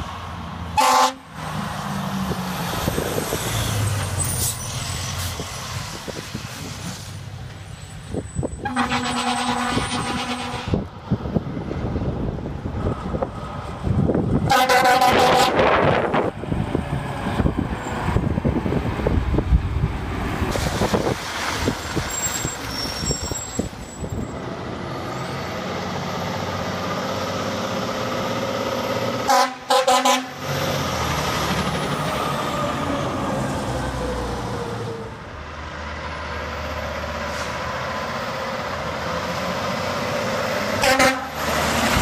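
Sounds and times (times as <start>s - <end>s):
fire truck driving by: 0.0s - 42.0s
air horn toots: 0.8s - 1.2s, 8.6s - 10.8s, 14.5s - 15.7s, 29.3s - 30.4s, 40.8s - 41.4s.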